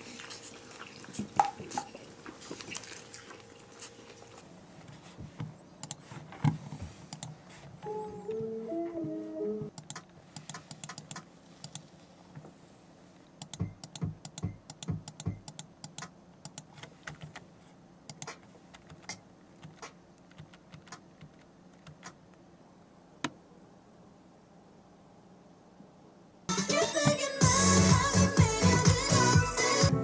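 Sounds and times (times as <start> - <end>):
typing on a computer keyboard: 7.1 - 7.3, 9.7 - 11.8, 13.4 - 17.4, 18.1 - 22.2
sharp click: 9.7 - 11.8, 13.4 - 16.7, 18.1 - 18.4.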